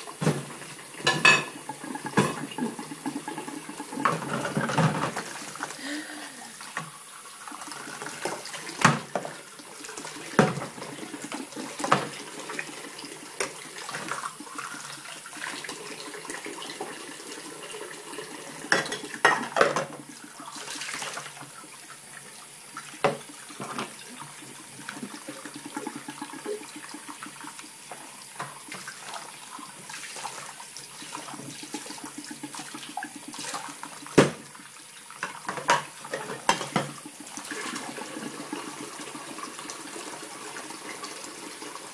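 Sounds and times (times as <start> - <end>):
dishes clinking and knocking: 0.2 - 5.3, 18.7 - 20.0, 35.2 - 37.0
tap running into a pot: 0.2 - 5.3, 10.3 - 12.2, 18.6 - 20.1, 23.0 - 24.0, 31.4 - 34.5, 35.2 - 37.8.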